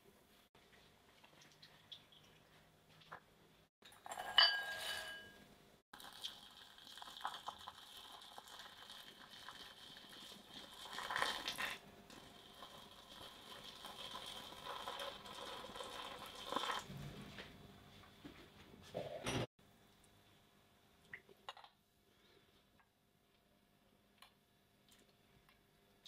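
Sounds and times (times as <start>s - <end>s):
glass bowl ringing: 4.1s - 5.4s
water pouring into bowl: 6.0s - 16.9s.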